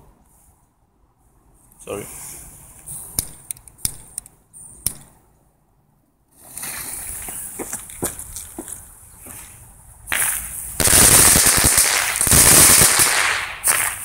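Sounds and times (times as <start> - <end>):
sharp clicks: 3.2 - 5.2
fireworks fizzing hiss: 10.1 - 14.0
sparks crackling: 10.1 - 14.0.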